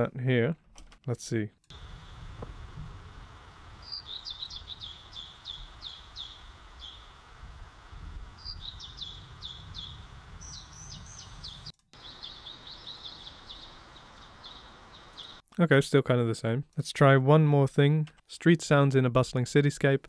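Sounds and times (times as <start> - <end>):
birds chirping: 3.7 - 7.3, 8.3 - 15.4.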